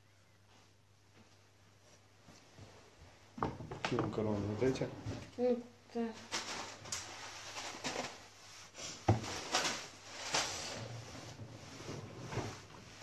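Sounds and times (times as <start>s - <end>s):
rustling: 6.1s - 13.0s.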